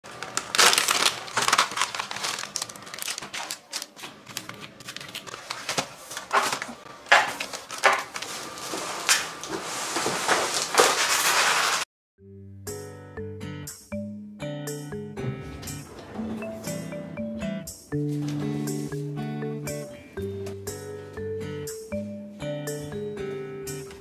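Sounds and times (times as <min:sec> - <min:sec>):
plastic packaging crinkling: 0:00.0 - 0:11.9
items being set down: 0:00.1 - 0:11.8.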